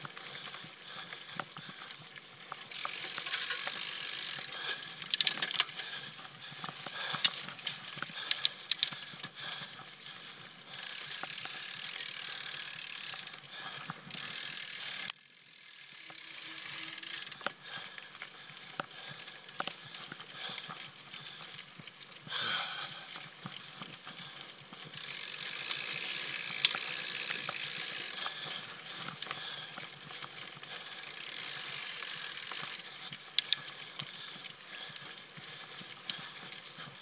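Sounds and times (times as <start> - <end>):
bike tyres on dirt trail: 0.0 - 37.0
small clicks and rattles: 0.0 - 37.0
freewheel ratcheting: 2.7 - 5.6, 10.8 - 13.4, 14.1 - 17.5, 24.9 - 28.3, 30.8 - 32.8.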